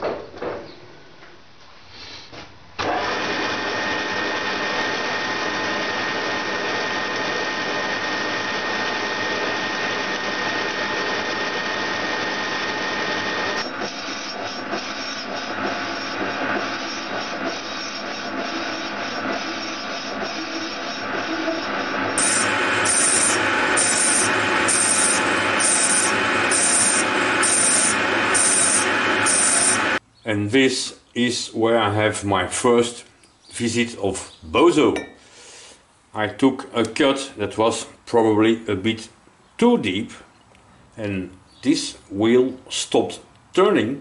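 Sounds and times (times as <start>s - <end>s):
metal lathe whining: 2.8s - 30.0s.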